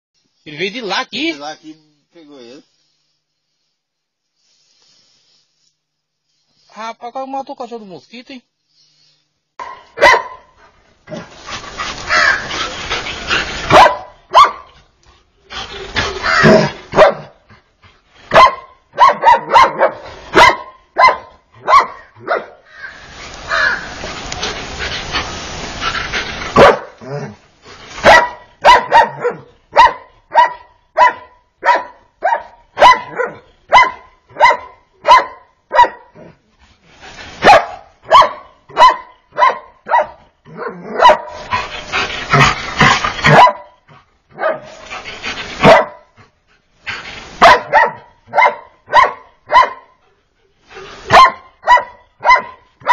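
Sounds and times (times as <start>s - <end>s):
dog barking: 9.6s - 10.6s, 13.7s - 14.8s, 16.3s - 17.4s, 18.3s - 22.6s, 26.5s - 27.0s, 28.0s - 36.3s, 37.4s - 41.6s, 43.2s - 44.8s, 45.6s - 46.2s, 47.4s - 50.0s, 51.1s - 52.9s
dense noise: 22.6s - 28.6s.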